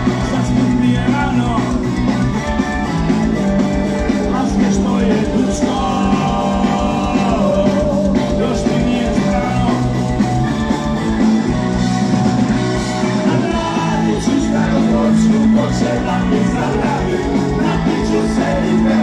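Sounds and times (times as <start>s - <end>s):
bass guitar: 0.0s - 19.0s
drums: 0.0s - 19.0s
electric guitar: 0.0s - 19.0s.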